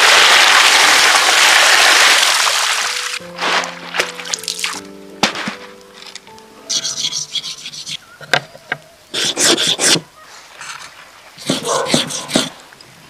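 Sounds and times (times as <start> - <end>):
soft background music: 2.7 - 8.0.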